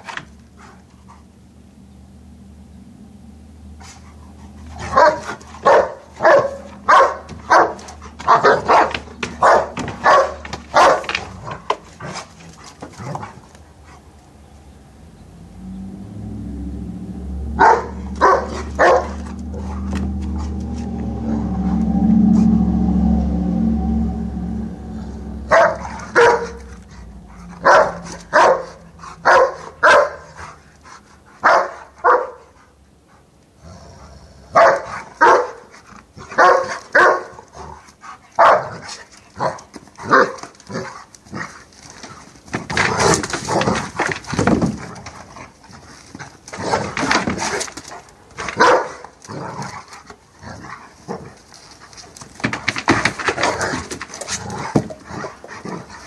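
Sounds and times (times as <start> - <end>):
dogs barking: 4.8 - 11.4, 17.5 - 20.1, 25.5 - 26.7, 27.4 - 30.6, 31.4 - 32.6, 34.5 - 35.7, 36.4 - 37.4, 38.4 - 38.8, 48.6 - 49.0.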